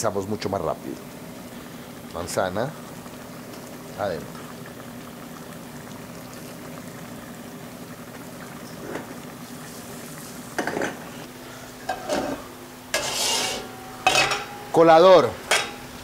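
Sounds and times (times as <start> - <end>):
apple sizzling in frying pan: 0.0 - 16.0
pots and utensils knocking: 10.6 - 11.0, 11.9 - 14.7, 15.4 - 15.9.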